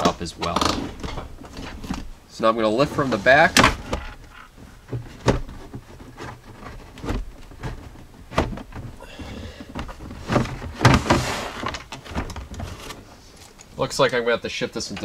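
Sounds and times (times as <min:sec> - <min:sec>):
plastic scraping rattle: 0:03.4 - 0:13.1.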